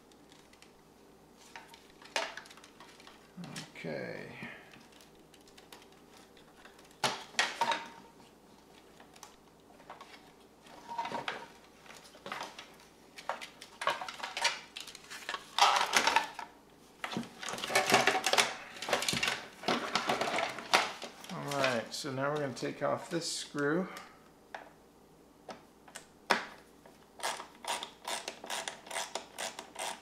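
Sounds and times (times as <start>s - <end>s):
plastic parts clicking and scraping: 1.4s - 3.7s, 4.7s - 8.0s, 8.7s - 21.8s, 27.2s - 30.0s.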